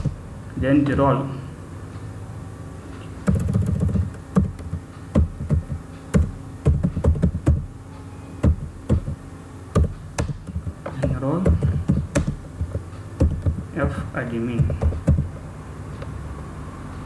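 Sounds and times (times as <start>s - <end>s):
typing on computer keyboard: 3.2s - 4.8s.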